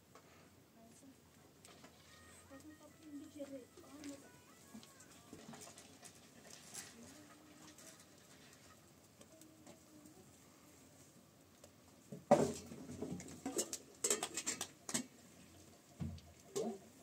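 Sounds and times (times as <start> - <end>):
sharp taps and clatters: 13.5 - 15.1.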